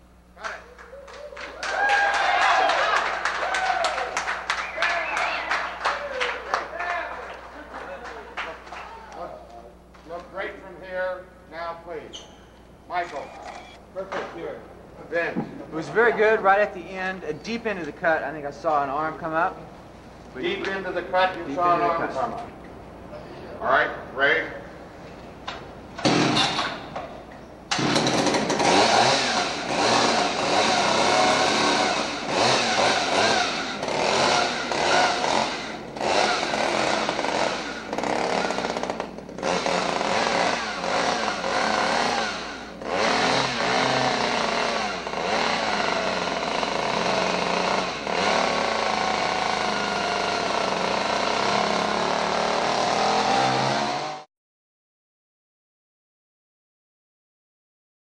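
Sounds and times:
chainsaw revving: 26.0 - 26.8, 27.7 - 54.3.

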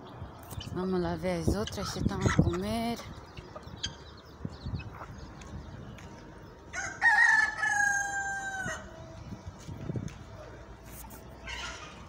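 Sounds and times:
rooster crowing: 6.7 - 8.9.

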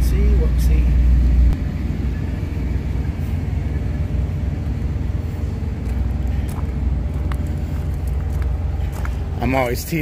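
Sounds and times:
diesel truck engine idling: 0.0 - 10.0
footsteps on gravel: 5.4 - 10.0.

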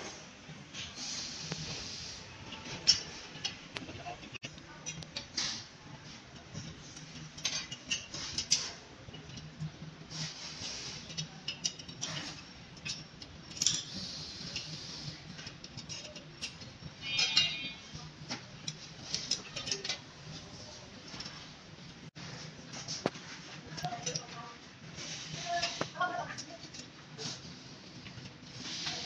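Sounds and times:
metal bike parts clinking: 0.8 - 21.5.

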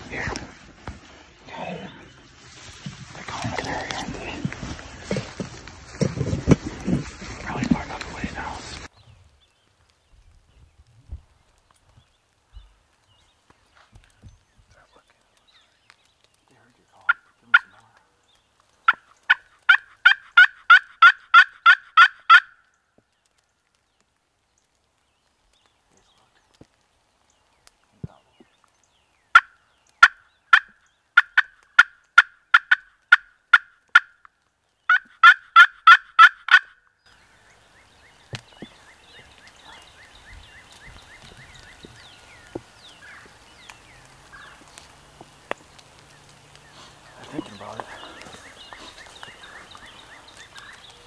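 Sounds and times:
faint rustling: 0.0 - 9.2, 37.1 - 51.0
turkey yelping: 18.9 - 22.6, 29.4 - 34.2, 34.9 - 36.8.

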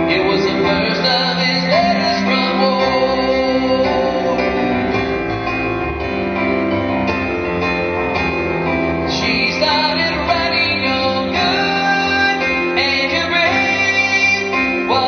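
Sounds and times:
man singing a slow ballad: 0.0 - 4.9, 9.1 - 15.0
stage piano: 0.0 - 15.0.

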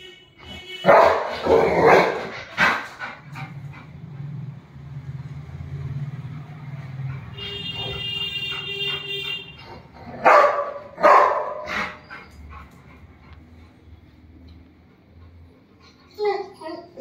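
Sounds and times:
dog barking: 0.8 - 2.8, 10.2 - 12.0.

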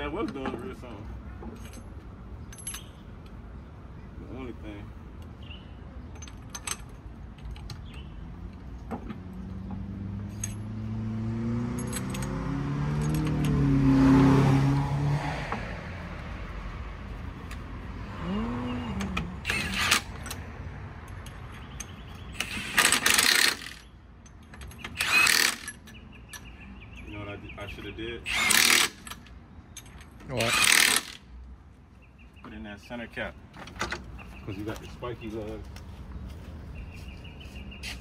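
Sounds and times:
vehicle engine revving: 9.1 - 16.4.

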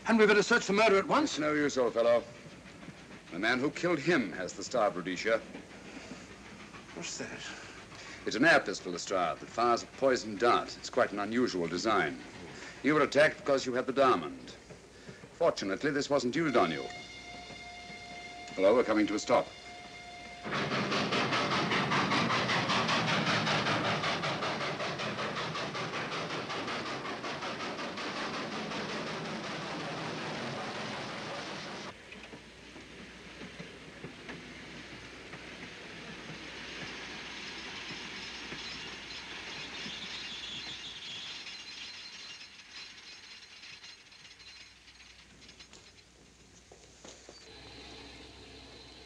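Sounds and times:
train brake hiss: 0.0 - 13.0, 16.4 - 42.3, 47.0 - 49.0
steam locomotive chuffing: 0.0 - 49.0
train running rumble: 0.0 - 49.0
carriage clicks and clanks: 20.5 - 46.6.

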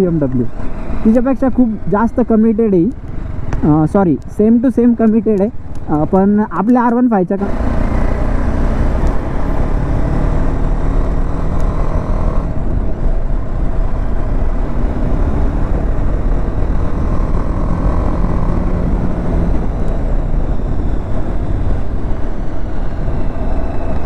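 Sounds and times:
motorcycle engine cruising: 7.4 - 24.0
wind rush on microphone: 7.4 - 24.0.

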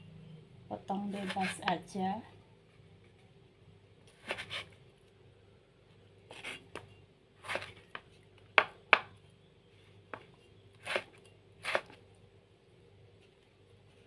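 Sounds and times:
knife slicing tomato: 1.1 - 1.8, 4.1 - 4.8, 6.3 - 8.0, 10.8 - 12.0.

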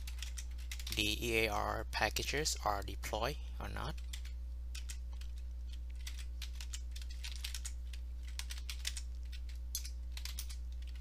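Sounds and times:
keyboard typing: 0.0 - 1.2, 3.8 - 11.0
low electrical hum: 0.0 - 11.0.

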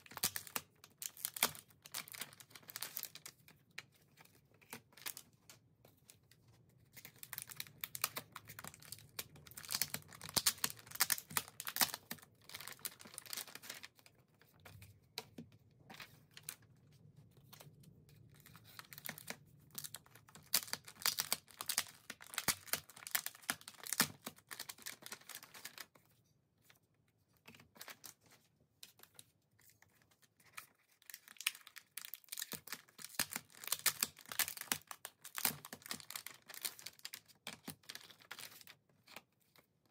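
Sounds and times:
plastic pouch crinkling and tearing: 0.0 - 3.4, 7.0 - 13.9, 18.3 - 25.9, 30.5 - 38.7.

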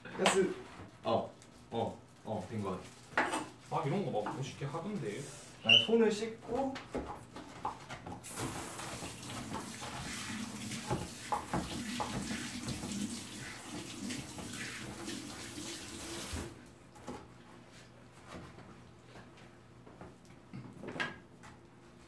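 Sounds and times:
tap running over hands: 10.7 - 13.0.

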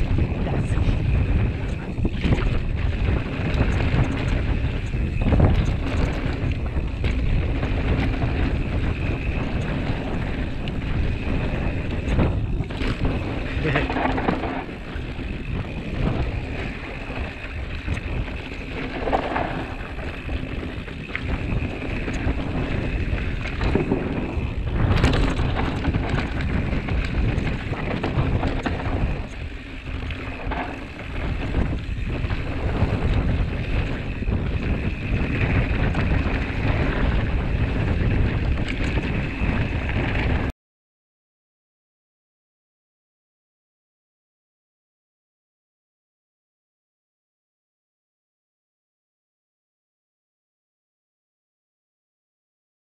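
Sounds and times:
bike knocks and rattles: 0.0 - 40.5
bike tyres rolling on gravel: 0.0 - 40.5
wind buffeting microphone: 0.0 - 40.5.

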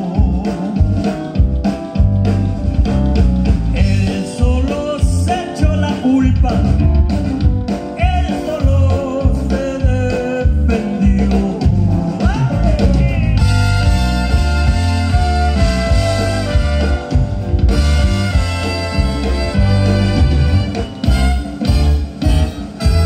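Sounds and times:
man singing into a microphone: 0.0 - 1.2, 3.7 - 6.8, 7.9 - 13.4
live band playing: 0.0 - 23.0.

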